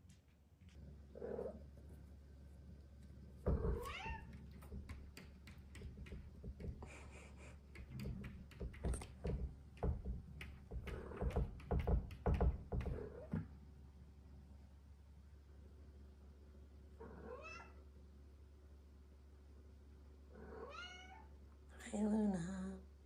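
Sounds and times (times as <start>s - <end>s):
cat scratching at wooden door: 3.4s - 13.3s
cat meowing: 3.6s - 4.3s, 17.1s - 17.8s, 20.4s - 21.3s.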